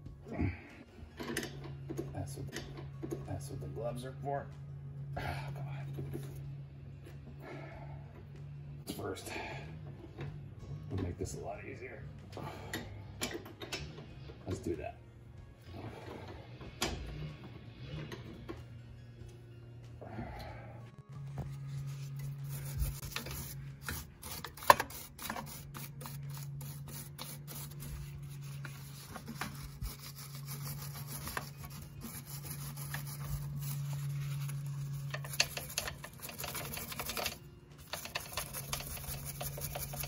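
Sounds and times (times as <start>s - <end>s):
steady low drone: 13.8s - 37.4s
wire brush scrubbing rust: 21.7s - 40.0s.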